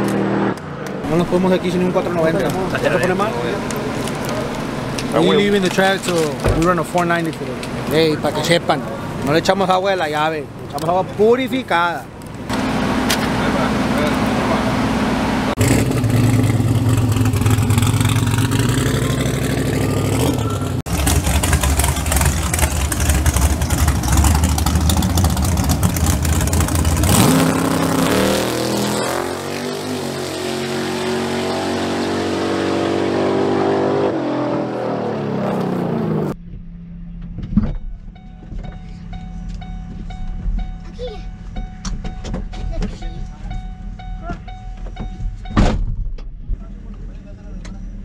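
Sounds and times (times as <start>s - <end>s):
truck engines revving hard: 0.0s - 36.4s
thump: 36.5s - 38.0s, 45.0s - 46.3s.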